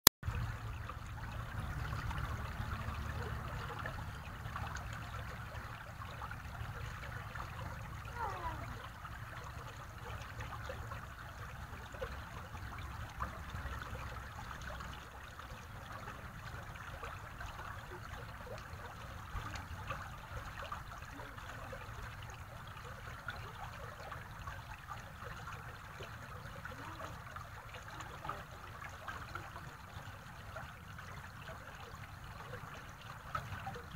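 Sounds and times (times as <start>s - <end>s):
stream trickling over pebbles: 0.2s - 33.9s.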